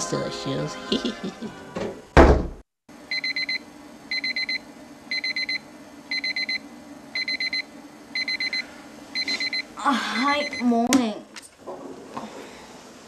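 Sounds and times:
alarm clock beeping: 3.1 - 10.8.

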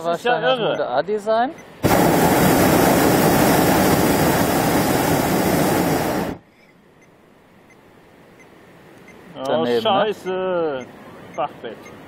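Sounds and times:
faint hiss: 1.6 - 12.0
propane burner roaring: 1.8 - 6.4.

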